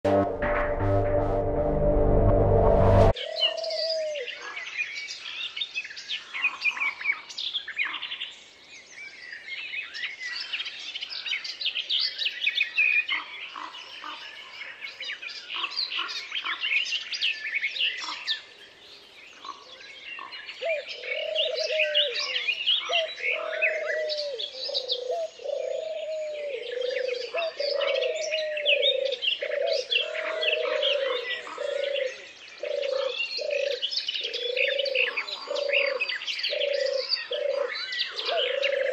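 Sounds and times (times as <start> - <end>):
low cooing bird call: 3.2 - 4.6, 20.2 - 38.9
small birds chirping and singing: 3.2 - 38.9.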